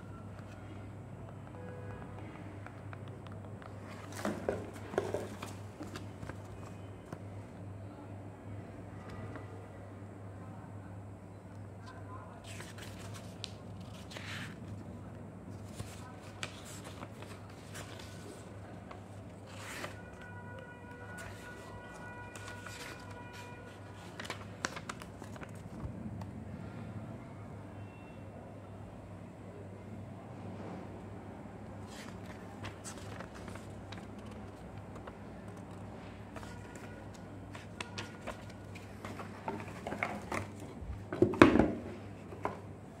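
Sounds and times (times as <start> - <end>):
paper pages turning: 12.4 - 14.8, 15.5 - 20.2, 22.3 - 25.9, 31.8 - 40.8
cardboard packaging rustling: 36.4 - 40.8.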